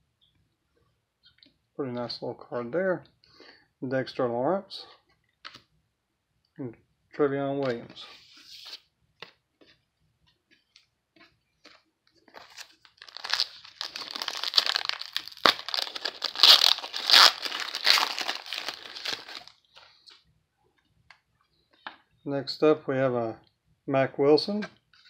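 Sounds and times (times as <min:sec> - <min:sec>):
wrapper crinkling: 0:12.2 - 0:19.6.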